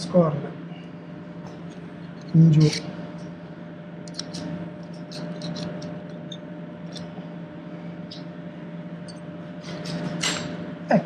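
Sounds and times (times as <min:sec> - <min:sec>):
steady low hum: 0:00.0 - 0:11.0
screwdriver clicks and scrapes: 0:04.1 - 0:05.9.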